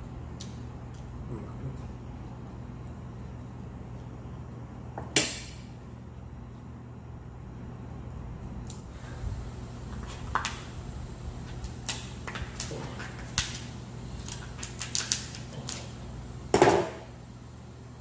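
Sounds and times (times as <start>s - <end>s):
faint low hum: 0.0s - 18.0s
lobster shell cracking: 11.6s - 15.9s.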